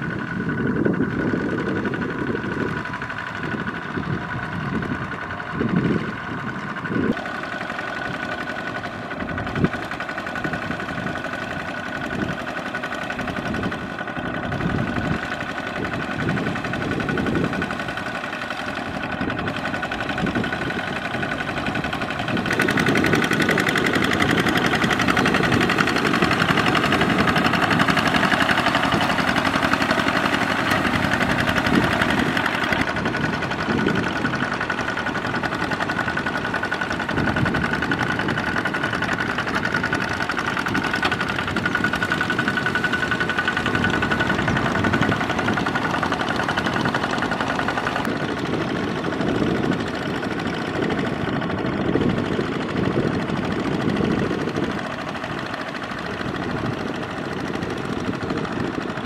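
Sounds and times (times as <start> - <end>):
diesel tractor engine under load: 0.0 - 59.0
wheels dragging through water: 0.0 - 59.0.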